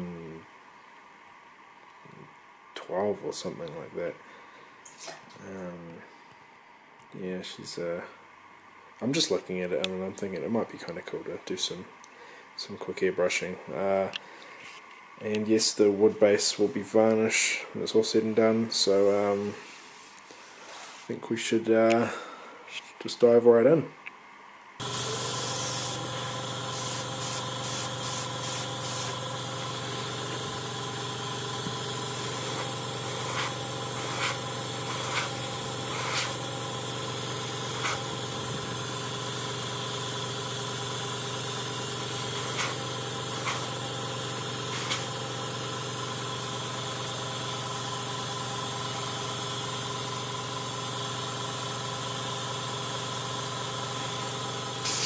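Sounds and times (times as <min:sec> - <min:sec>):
hiss of air: 0:24.8 - 0:46.6, 0:53.4 - 0:55.0
airbrush compressor running: 0:24.8 - 0:55.0.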